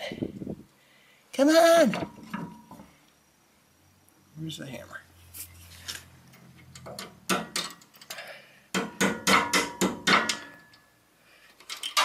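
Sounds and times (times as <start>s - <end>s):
hammer tapping on metal: 8.7s - 10.6s.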